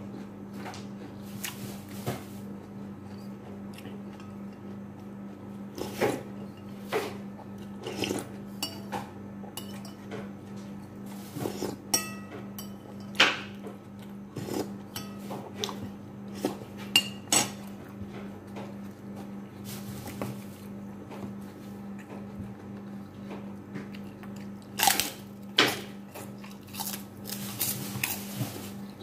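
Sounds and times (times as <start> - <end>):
cracker crunching: 23.8 - 29.0.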